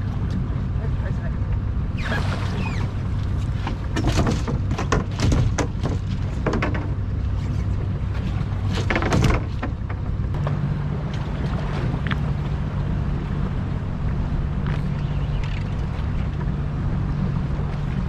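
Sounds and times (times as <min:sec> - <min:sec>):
boat engine idling: 0:00.0 - 0:18.0.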